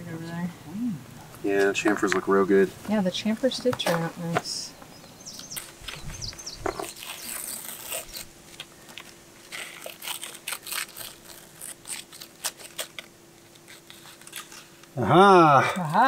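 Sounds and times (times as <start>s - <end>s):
faint steady hum: 0.0s - 16.0s
tape scraping and tearing: 5.4s - 15.0s.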